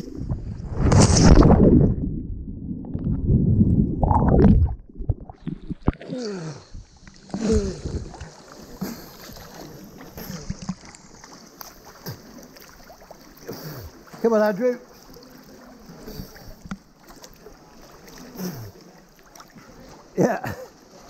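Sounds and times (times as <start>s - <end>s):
muffled underwater rush of bubbles: 0.0s - 14.1s
water gurgling and sloshing: 0.0s - 21.0s.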